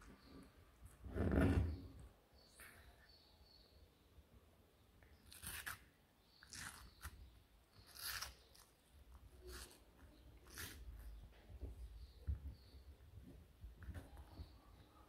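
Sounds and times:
tortoise crunching watermelon: 5.2 - 11.2.

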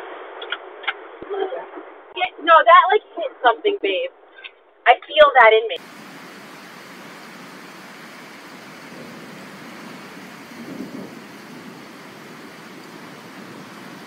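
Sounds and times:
rain hissing: 5.8 - 14.0.

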